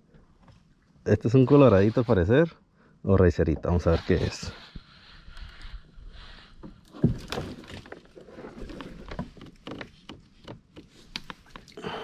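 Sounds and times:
knocks and rustling in kayak: 6.4 - 11.7.

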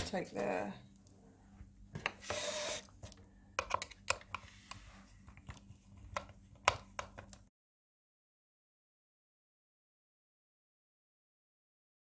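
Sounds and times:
hard plastic clicks and taps: 3.0 - 4.4, 5.3 - 7.4.

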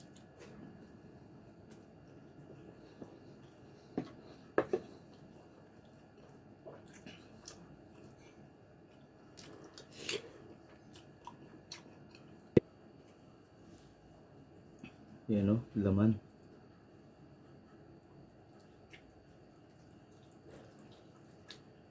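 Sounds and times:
chewing food: 1.6 - 13.2, 17.4 - 21.9.

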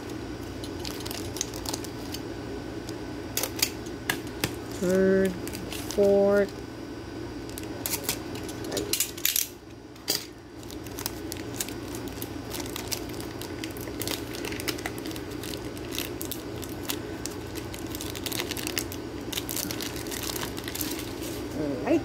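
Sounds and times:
plastic crinkling: 0.0 - 2.2, 5.4 - 6.1, 10.2 - 21.5
low background hum: 0.0 - 22.0.

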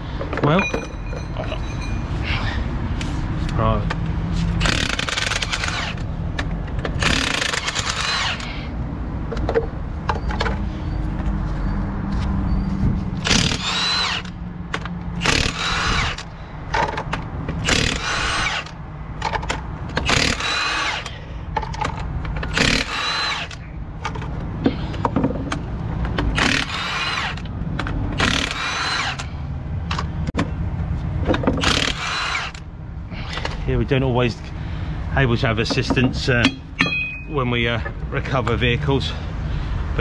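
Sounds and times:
impact wrench whine: 4.6 - 6.1, 6.9 - 8.6, 13.2 - 16.3, 17.6 - 21.2, 21.8 - 23.6, 26.2 - 27.5, 28.2 - 30.1, 31.5 - 32.6.

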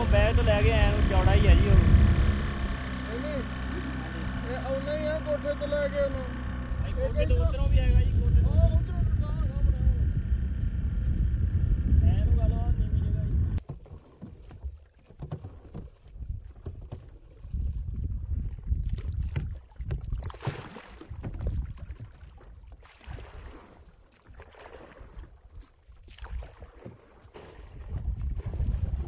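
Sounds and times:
wind buffeting microphone: 0.0 - 3.0, 6.2 - 13.6, 15.7 - 20.3, 27.6 - 29.0.

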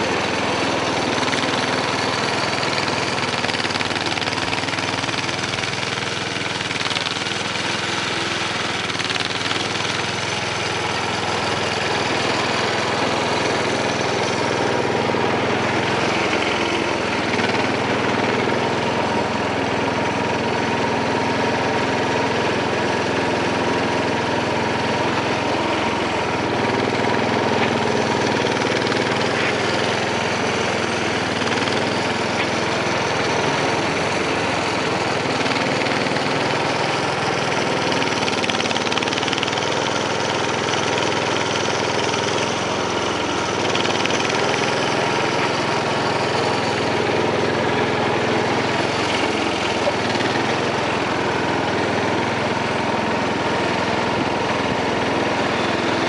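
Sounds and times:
garden tractor engine running: 0.0 - 56.0.

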